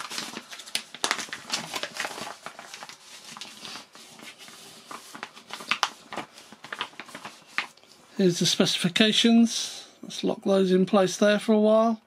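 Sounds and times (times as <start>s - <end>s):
paper pages rustling: 0.0s - 7.9s.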